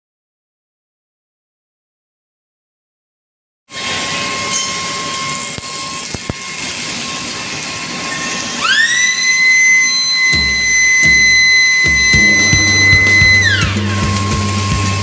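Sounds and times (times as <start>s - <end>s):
furnace hiss: 3.7s - 15.0s
high machine whine: 3.7s - 15.0s.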